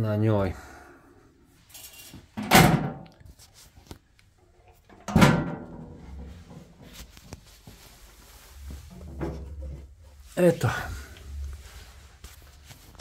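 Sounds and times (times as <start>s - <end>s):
faint knocks and rattles: 4.8s - 7.4s, 8.6s - 10.2s.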